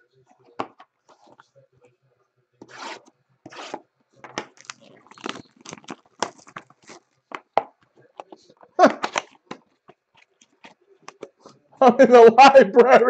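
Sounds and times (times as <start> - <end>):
card pack wrappers tearing: 4.4 - 7.2
wrapper crinkling: 4.4 - 7.6.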